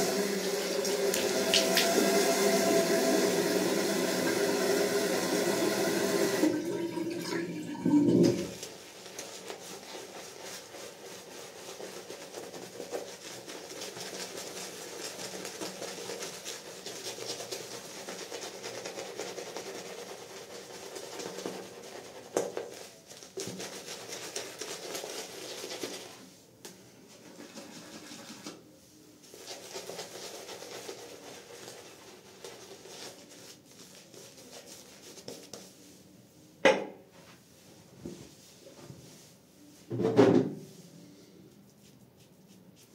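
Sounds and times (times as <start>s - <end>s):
shaving brush swishing on stubble: 8.6s - 26.4s.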